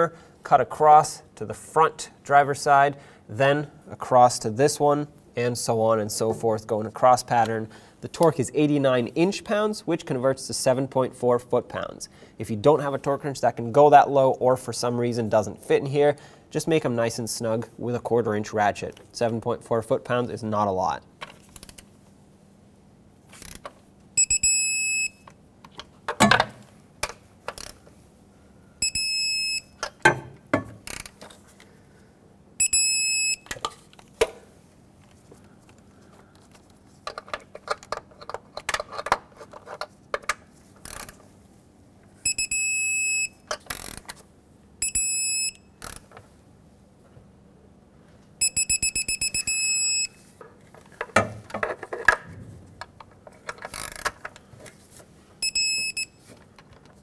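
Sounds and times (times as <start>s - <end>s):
torque wrench high beeps: 24.2s - 25.3s, 28.8s - 29.8s, 32.6s - 33.5s, 42.2s - 43.5s, 44.8s - 45.7s, 48.4s - 50.2s, 55.4s - 56.2s
ratchet clicks and clunks: 30.8s - 31.2s, 40.8s - 41.2s, 43.5s - 44.2s, 53.0s - 54.4s.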